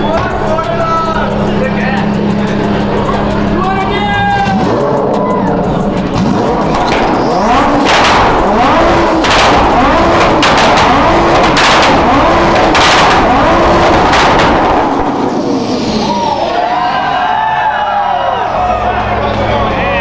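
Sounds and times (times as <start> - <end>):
car engine revving: 0.0 - 17.0
exhaust backfire bangs: 6.0 - 16.4.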